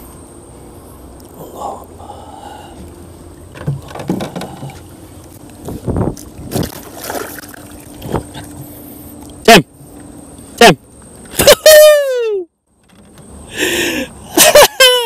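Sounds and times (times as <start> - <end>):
fish splashing at water surface: 6.5 - 8.4.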